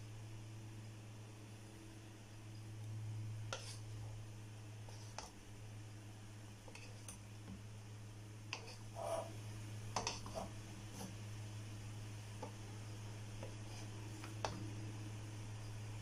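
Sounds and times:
steady low hum: 0:00.0 - 0:16.0
spatula scraping a pan: 0:03.5 - 0:04.0, 0:04.8 - 0:05.4, 0:06.6 - 0:07.2, 0:08.5 - 0:11.2, 0:13.4 - 0:14.7.

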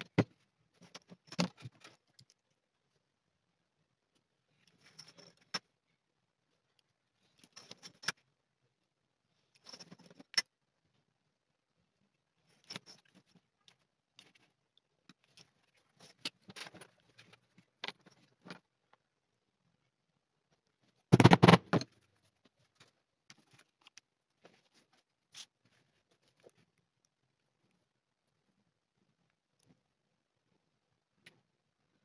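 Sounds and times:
light clicks and scrapes: 0:04.5 - 0:05.7, 0:06.7 - 0:08.3, 0:09.3 - 0:10.5, 0:12.4 - 0:19.0.

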